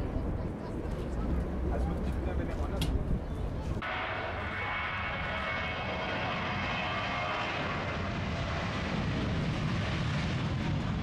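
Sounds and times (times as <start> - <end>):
jet engines roaring: 3.8 - 11.0.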